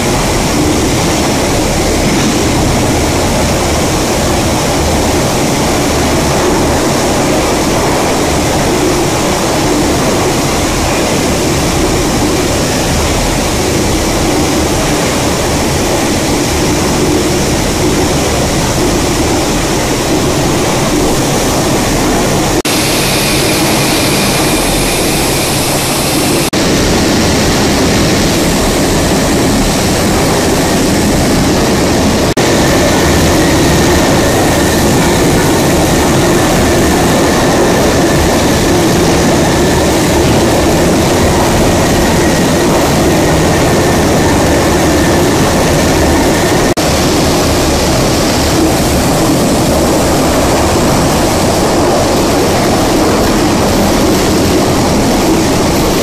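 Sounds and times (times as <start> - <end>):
industrial machinery din: 0.0 - 56.0
faint high whine: 18.2 - 31.2.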